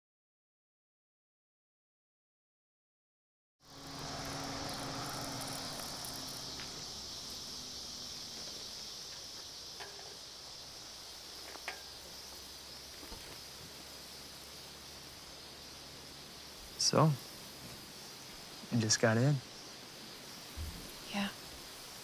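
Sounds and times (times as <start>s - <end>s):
low hum: 3.6s - 9.0s
insects chirring: 3.6s - 22.0s.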